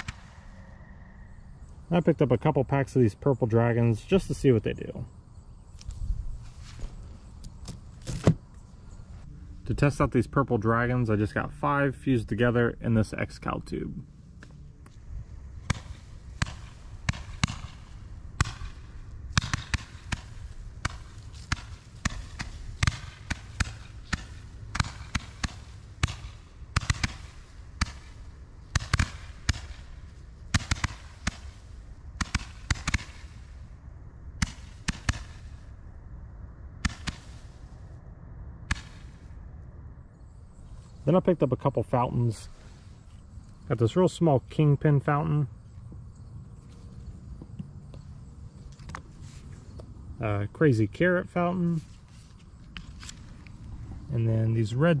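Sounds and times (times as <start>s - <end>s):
firework bangs: 0.0s - 0.4s, 15.6s - 29.9s, 36.8s - 37.6s.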